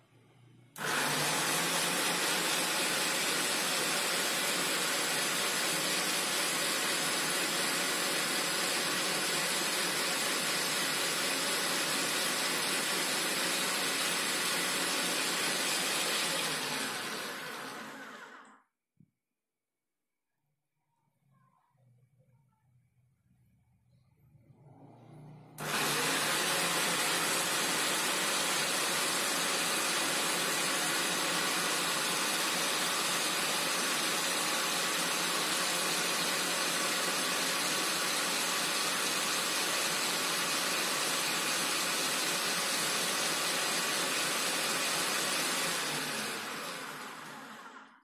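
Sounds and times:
juicer motor whirring: 0:00.8 - 0:18.6, 0:24.7 - 0:48.0.

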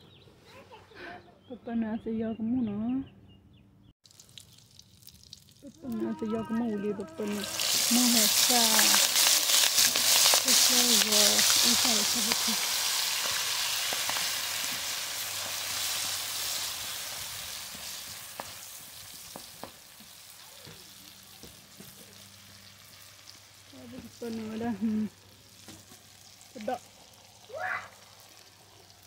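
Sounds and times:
oil sizzling in a frying pan: 0:07.2 - 0:29.0.

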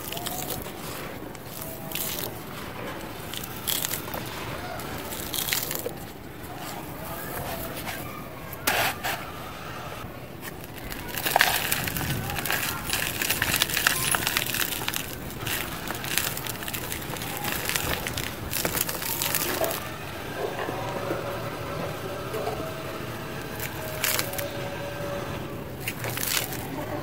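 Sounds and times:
dry cement crunching in hands: 0:00.0 - 0:27.0
powder sifting into plastic tub: 0:10.1 - 0:21.3.

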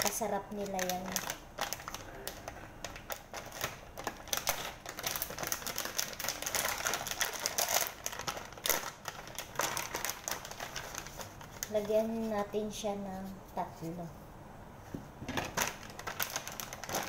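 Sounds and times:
plastic packet crinkling: 0:00.0 - 0:12.6, 0:15.4 - 0:17.0.

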